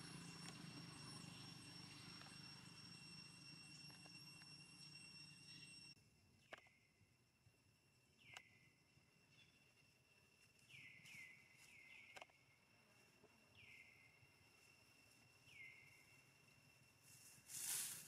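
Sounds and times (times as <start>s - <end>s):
thin high whine: 0.0s - 6.0s, 12.5s - 18.0s.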